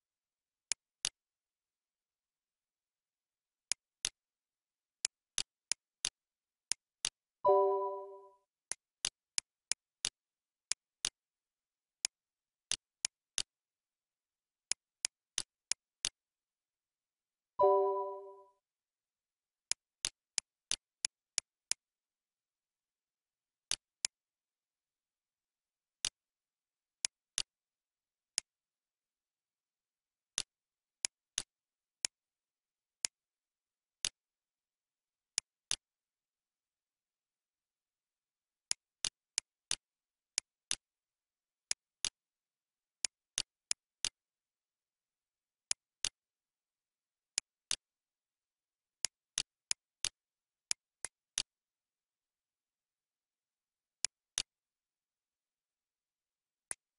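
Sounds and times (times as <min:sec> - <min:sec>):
mouse button clicking: 0:17.6 - 0:18.4.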